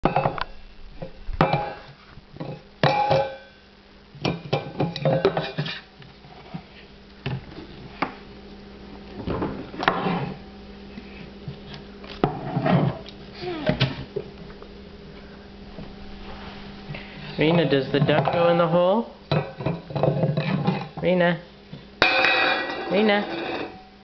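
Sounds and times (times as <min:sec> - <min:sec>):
metal bowl clattering: 0:00.0 - 0:03.5, 0:04.2 - 0:05.8, 0:17.4 - 0:18.7, 0:19.3 - 0:21.0, 0:22.0 - 0:23.9.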